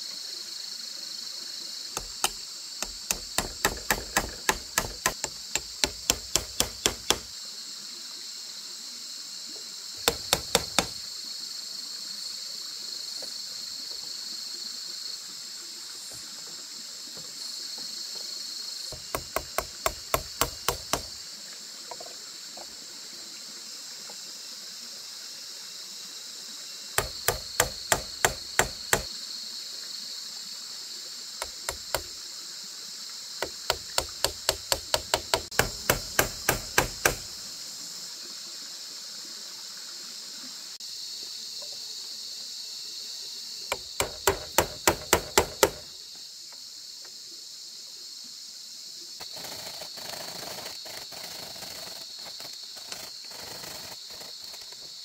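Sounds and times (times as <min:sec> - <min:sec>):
high insect drone: 0:00.0 - 0:55.0
hand tool striking: 0:02.0 - 0:07.3, 0:10.0 - 0:11.0, 0:18.9 - 0:21.1, 0:27.0 - 0:29.1, 0:31.4 - 0:32.1, 0:33.4 - 0:37.3, 0:43.7 - 0:45.8.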